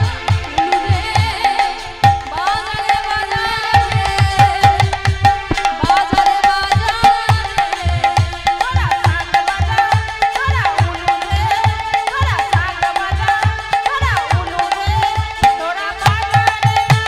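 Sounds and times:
barrel drum beating deep strokes: 0:02.1 - 0:08.9.

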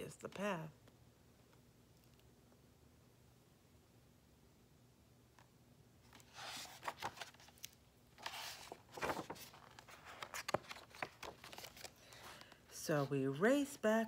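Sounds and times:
book pages rustling: 0:06.0 - 0:13.6.

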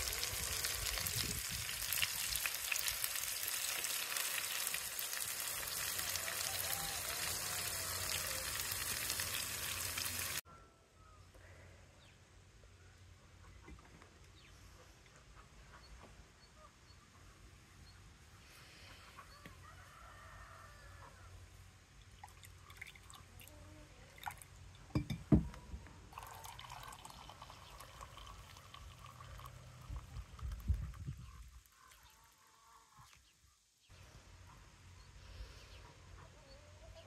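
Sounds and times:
coffee pouring into mug: 0:24.2 - 0:24.4, 0:26.1 - 0:30.7.

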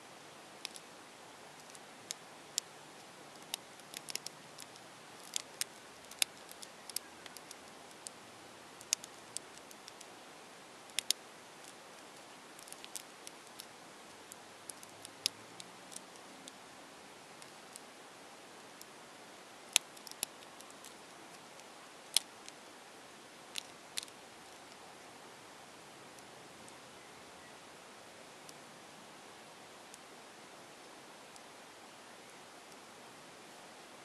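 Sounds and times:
puzzle cube plastic clicking: 0:03.4 - 0:08.0.

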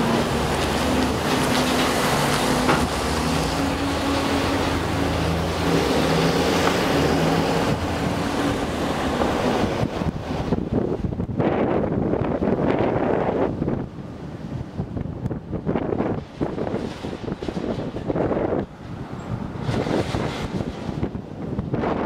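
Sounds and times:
car engine: 0:00.0 - 0:11.2
road noise: 0:00.0 - 0:22.0.

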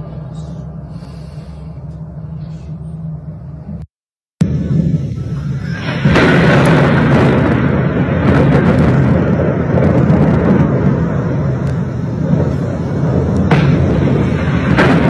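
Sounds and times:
distant explosion: 0:04.4 - 0:15.0
rolling rumble with cracks: 0:04.4 - 0:15.0.

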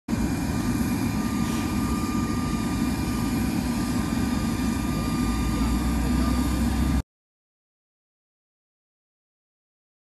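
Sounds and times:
jet engine high whine: 0:00.1 - 0:07.0.

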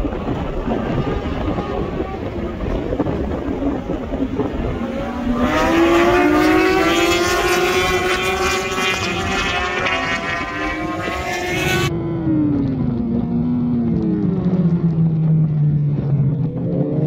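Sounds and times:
motorcycle engine revving high: 0:00.0 - 0:17.0
wind rush over microphone: 0:00.0 - 0:17.0.

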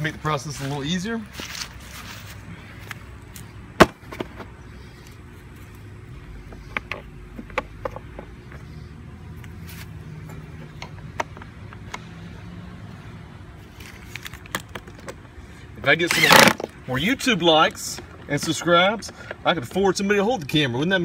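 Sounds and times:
low steady hum: 0:00.0 - 0:21.0
light clicks and knocks of parts: 0:06.4 - 0:08.7, 0:10.2 - 0:12.1, 0:17.6 - 0:19.8.

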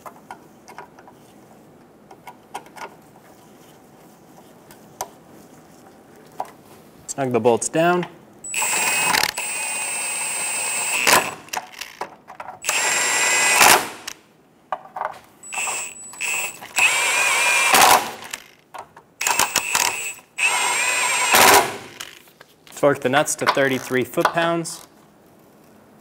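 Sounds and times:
power tool motor whining: 0:08.5 - 0:11.6, 0:12.6 - 0:14.2, 0:15.4 - 0:18.6, 0:19.2 - 0:22.2.

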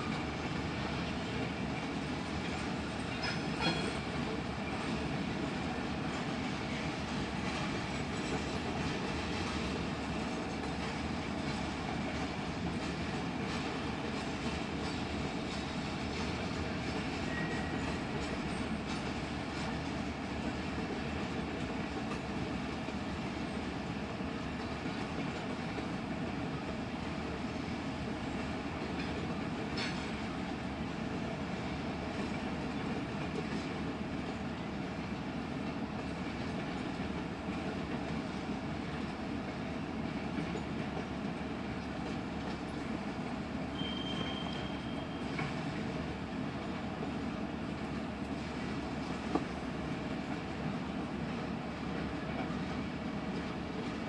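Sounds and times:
train cars rolling on rails: 0:00.0 - 0:54.0
thin squeal: 0:43.7 - 0:45.5.

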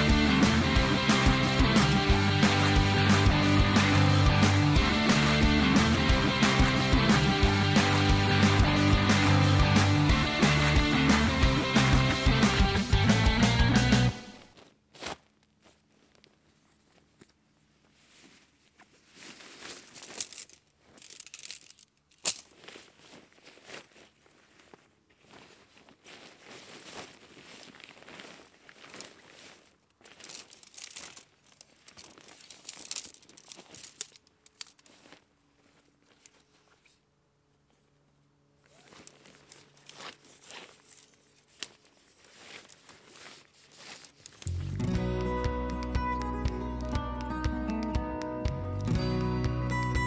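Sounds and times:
loud music: 0:00.0 - 0:14.4, 0:44.5 - 0:50.0
fabric rustling and crinkling: 0:14.4 - 0:37.0, 0:37.6 - 0:44.8.

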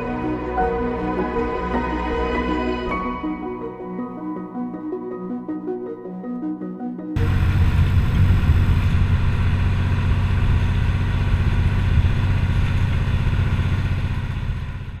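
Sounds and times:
boat engine pulsing: 0:07.2 - 0:15.0.

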